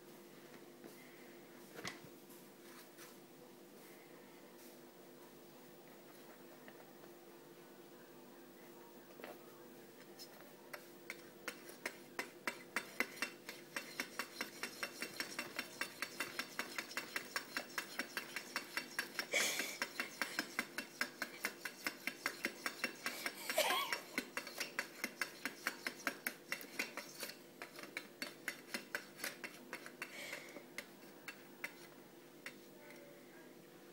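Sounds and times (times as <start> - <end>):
wall clock ticking fast: 11.1 - 30.5.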